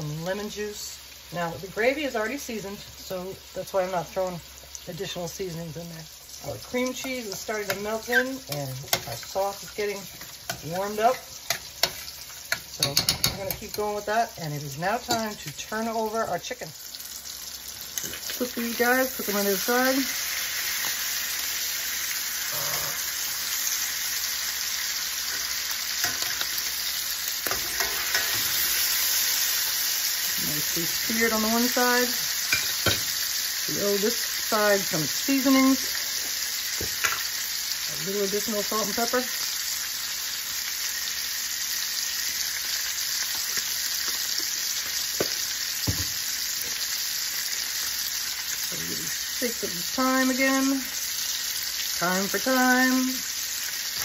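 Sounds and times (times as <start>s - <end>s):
chicken sizzling in pan: 0.0s - 54.0s
metal tongs scraping pan: 25.3s - 26.7s, 27.4s - 28.9s.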